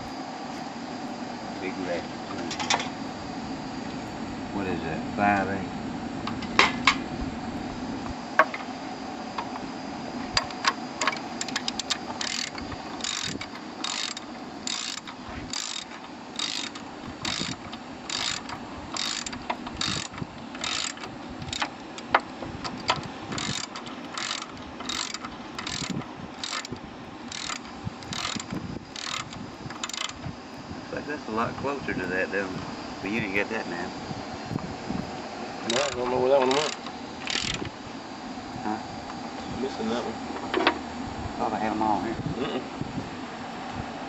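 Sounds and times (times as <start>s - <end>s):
ratchet wrench clicking: 10.4s - 30.2s, 35.7s - 37.6s
sharp metal clicks and knocks: 10.4s - 30.2s, 35.7s - 37.7s.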